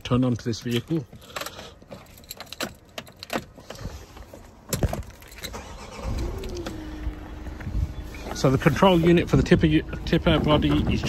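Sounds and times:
diesel engine starting and idling: 5.1 - 11.0.

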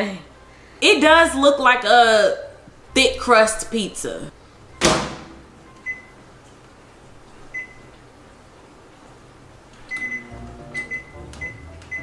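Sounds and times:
light background music: 0.0 - 6.3, 9.8 - 12.0
microwave keypad beeping: 5.6 - 6.2, 7.5 - 8.0, 9.9 - 12.0.

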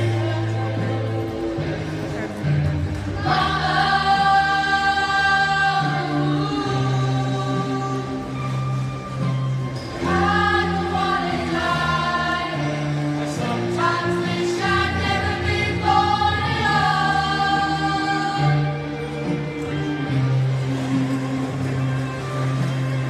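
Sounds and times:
low instrumental backing: 0.0 - 23.0
group singing in harmony: 3.1 - 8.6, 9.9 - 19.5.

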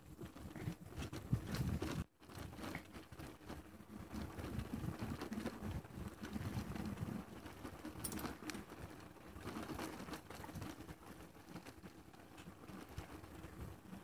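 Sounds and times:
faint rattle: 6.2 - 8.8.

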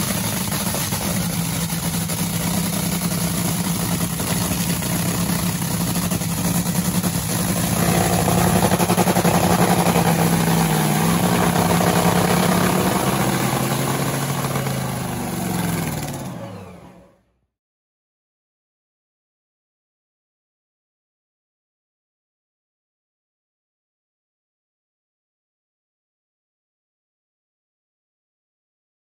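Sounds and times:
dragster engine running: 0.0 - 17.3.

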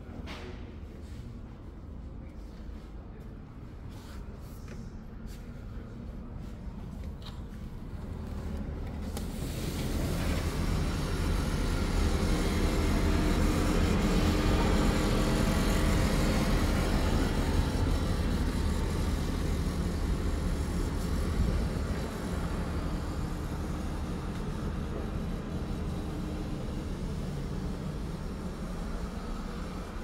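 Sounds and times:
construction machinery: 6.8 - 30.0
road traffic rumble: 7.6 - 30.0.

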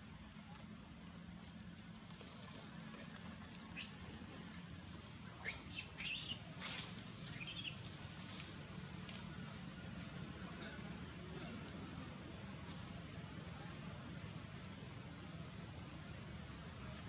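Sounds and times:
low background hum: 0.0 - 17.0
high-pitched animal squeaks: 3.2 - 4.2, 5.4 - 6.4, 7.3 - 7.8.

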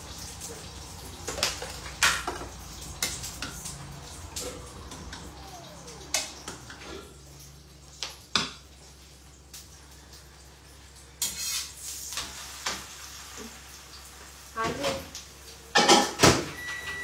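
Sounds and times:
dishes and utensils clinking: 15.7 - 17.0.

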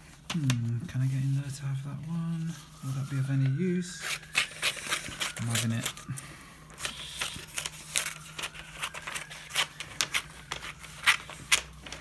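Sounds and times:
scissors snipping paper: 4.0 - 6.0, 6.8 - 12.0.

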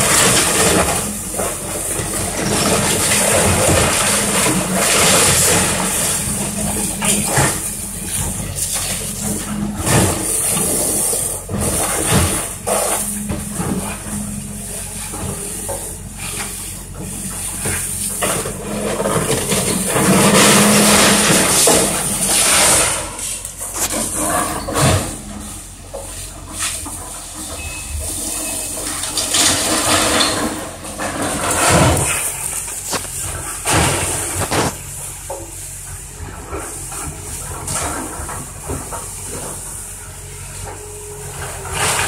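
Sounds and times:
wood crunching and splintering: 0.0 - 25.2, 29.0 - 34.9
diesel engine hum: 0.0 - 42.0.

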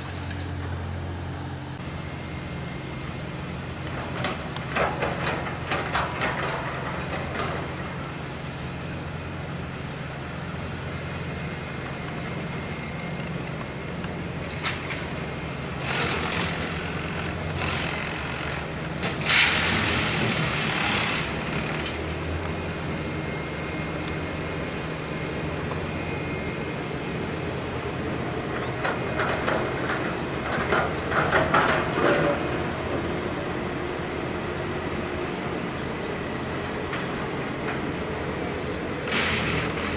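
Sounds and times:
heavy engine humming: 0.0 - 39.9
loud bursts of hiss: 39.1 - 39.9.

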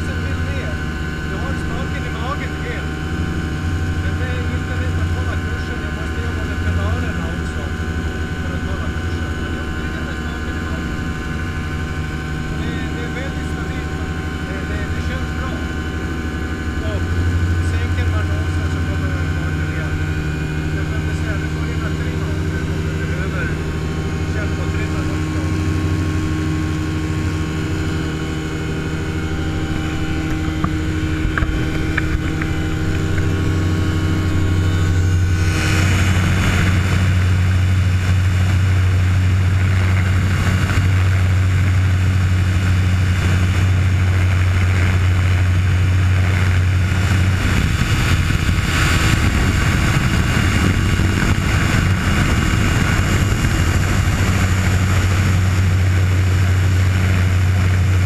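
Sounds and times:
aircraft engine droning: 0.0 - 58.0
wind rushing: 46.7 - 56.8.

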